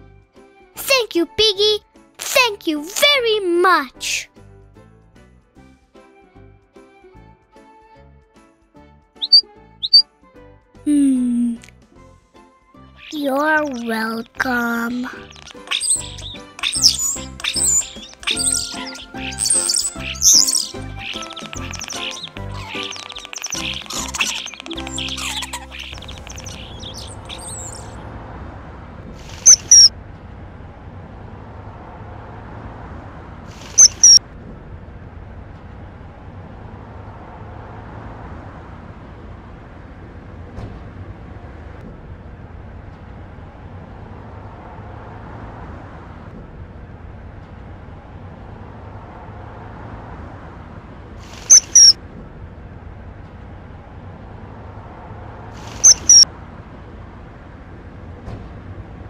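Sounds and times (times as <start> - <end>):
kingfisher shrill calls: 9.2 - 10.0, 13.0 - 28.0, 29.4 - 29.9, 33.7 - 34.2, 51.4 - 52.0, 55.8 - 56.2.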